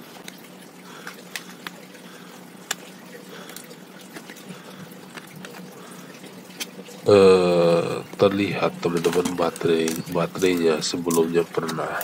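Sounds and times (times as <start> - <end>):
faint steady hum: 0.0 - 12.0
plastic clips snapping: 2.6 - 2.9, 8.9 - 11.8.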